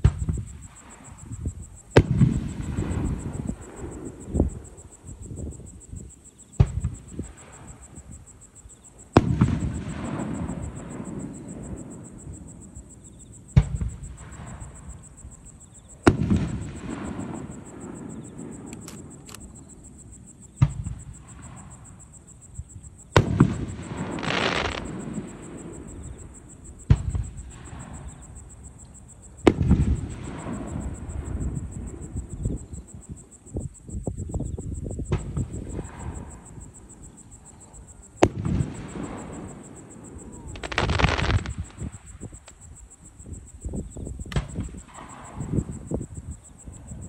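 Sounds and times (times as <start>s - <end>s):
distant firework booms: 0.0s - 8.4s, 9.0s - 47.0s
firework crackling: 23.2s - 25.9s, 38.2s - 42.6s.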